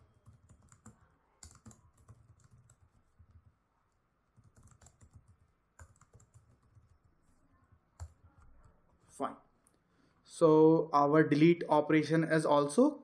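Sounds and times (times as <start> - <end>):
faint computer keyboard typing: 0.0 - 9.1.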